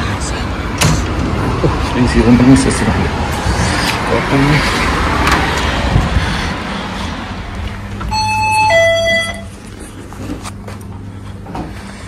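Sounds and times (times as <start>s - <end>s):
street traffic: 0.0s - 12.0s
two-note door chime: 8.1s - 9.6s.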